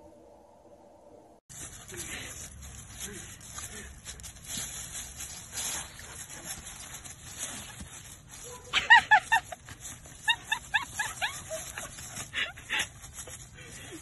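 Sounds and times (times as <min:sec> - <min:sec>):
dog yipping excitedly: 0:07.6 - 0:12.5.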